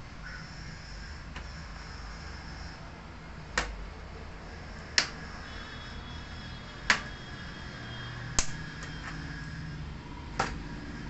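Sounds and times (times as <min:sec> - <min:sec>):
plastic clips snapping loose: 0:08.4 - 0:08.6.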